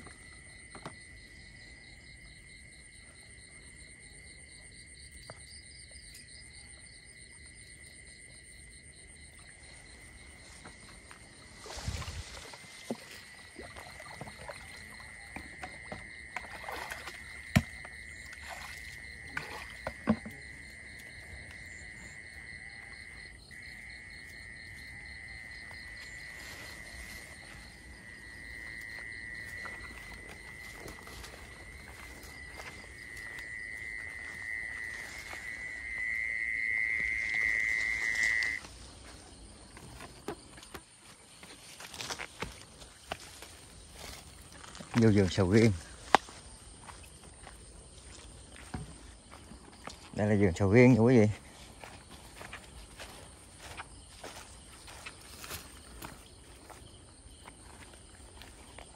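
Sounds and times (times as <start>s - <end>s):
night insects chirring: 0.0s - 58.9s
water splashing in bucket: 10.7s - 21.1s, 28.6s - 35.6s.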